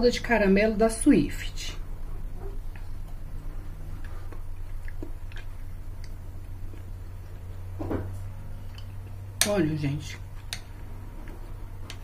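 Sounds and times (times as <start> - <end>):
steady low hum: 0.0 - 12.0
person chewing: 2.1 - 9.2
wet mouth clicks: 4.0 - 6.8.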